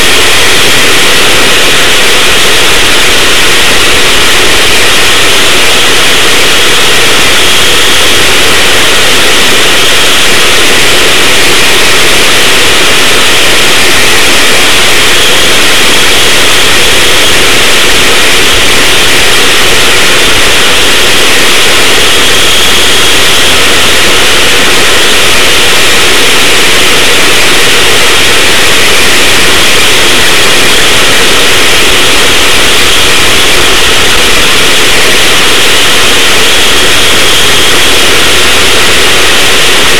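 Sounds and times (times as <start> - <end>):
go-kart engine running at speed: 0.0 - 39.9.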